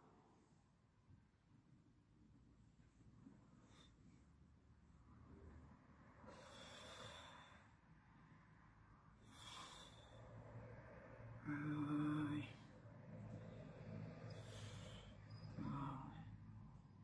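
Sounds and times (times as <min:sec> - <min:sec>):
man breathing heavily: 0:06.2 - 0:07.9, 0:09.1 - 0:11.4, 0:12.4 - 0:16.8.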